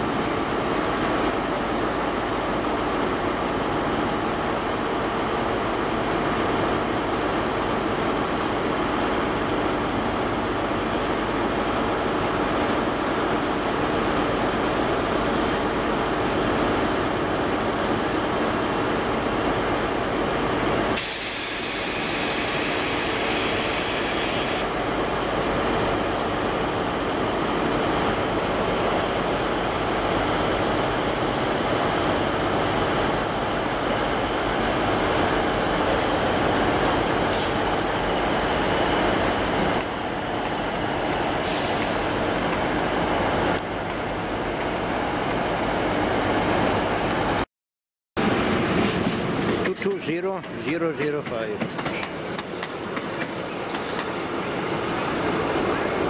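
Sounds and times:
train diesel engines running: 0.0s - 47.4s, 48.2s - 56.0s
sharp hiss: 21.0s - 24.7s.

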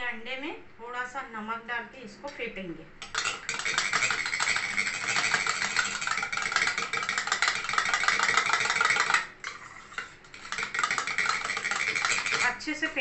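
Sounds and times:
spoon clattering against metal bowl: 3.0s - 12.9s.

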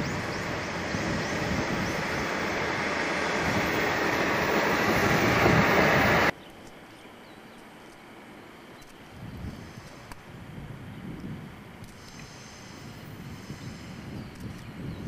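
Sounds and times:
diesel railcar running on rails: 0.0s - 6.3s
faint outdoor background noise: 0.0s - 15.0s.

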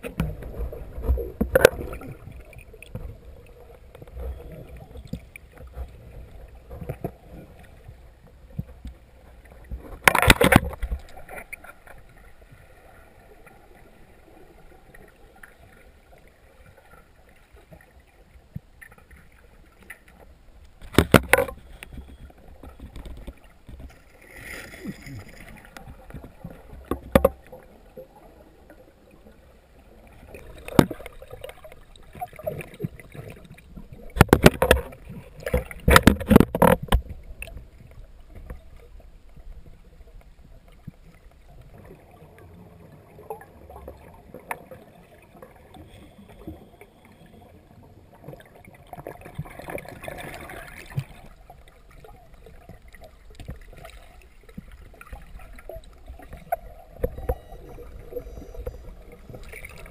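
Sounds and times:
underwater knocks and clicks: 0.0s - 12.5s, 19.8s - 24.1s, 24.8s - 28.1s, 30.1s - 42.0s, 48.2s - 59.9s.

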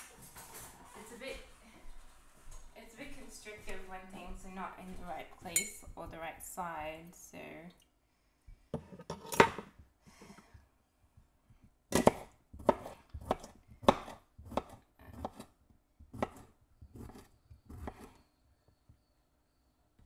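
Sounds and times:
knife chopping on wooden board: 11.9s - 18.2s.

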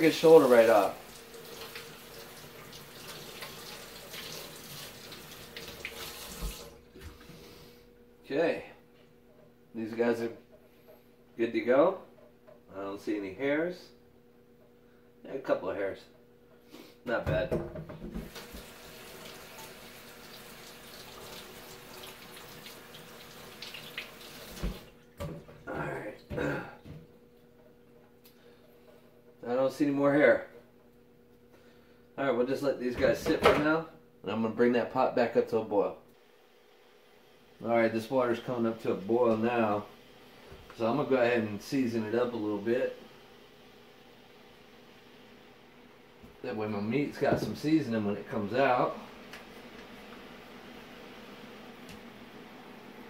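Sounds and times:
water running from faucet: 0.0s - 6.8s, 18.2s - 25.1s.

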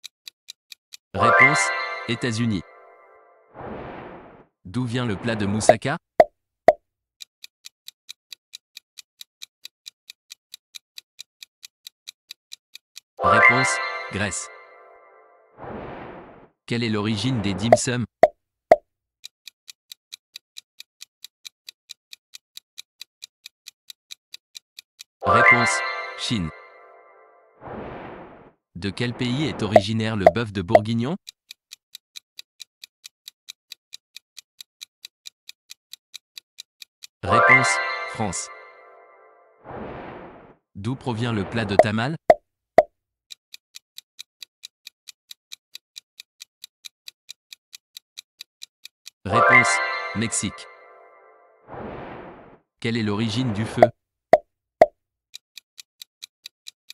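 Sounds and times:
clock-like ticking: 0.0s - 2.8s, 6.7s - 14.8s, 17.2s - 18.0s, 19.2s - 28.2s, 28.8s - 38.0s, 40.9s - 51.3s, 55.3s - 56.9s.

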